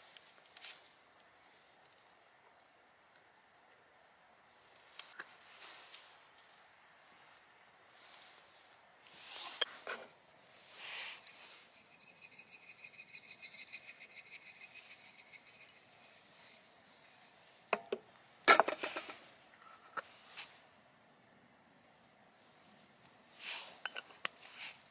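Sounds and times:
seasoning shaker rattling: 11.3s - 17.4s.

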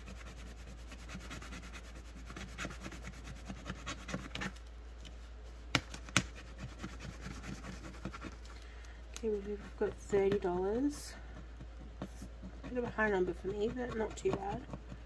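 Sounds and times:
fingernail scratching paper: 0.0s - 4.6s, 5.8s - 8.5s, 9.2s - 15.0s.

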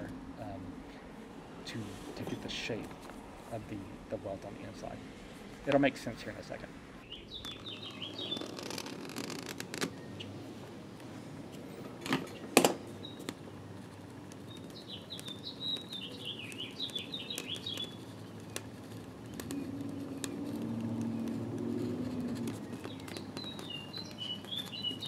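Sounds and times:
small bird chirping: 7.0s - 9.0s, 9.9s - 10.4s, 12.3s - 25.0s.

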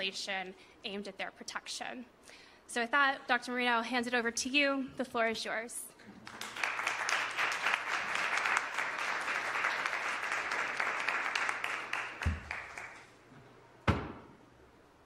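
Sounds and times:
audience applauding: 6.2s - 13.2s.

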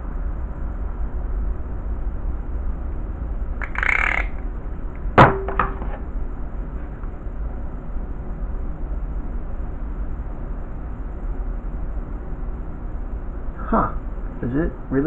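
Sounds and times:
low background rumble and hiss: 0.0s - 15.0s
sharp knock with low ring: 5.2s - 6.0s.

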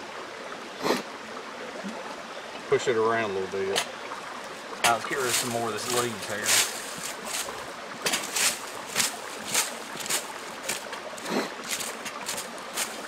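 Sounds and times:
creek rushing: 0.0s - 13.0s
dry leaves rustling: 5.0s - 13.0s.

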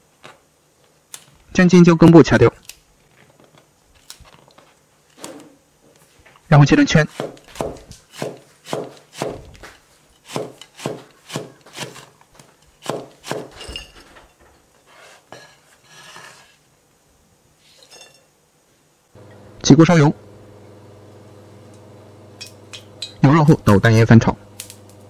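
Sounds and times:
cleaver chopping on wooden board: 7.1s - 9.5s, 10.3s - 12.0s, 12.8s - 13.5s.

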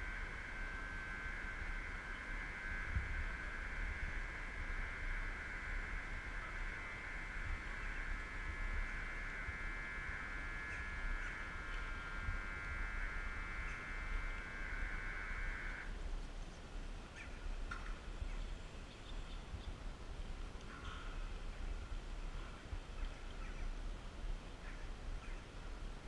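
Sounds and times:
high electronic warning buzzer: 0.0s - 15.9s.

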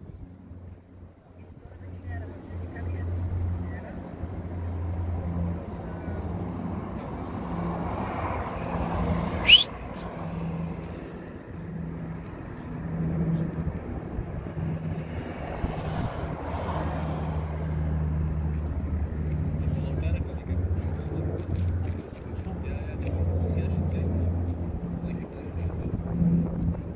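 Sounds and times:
propeller plane droning overhead: 0.0s - 26.9s
rising squeal: 9.4s - 9.8s.

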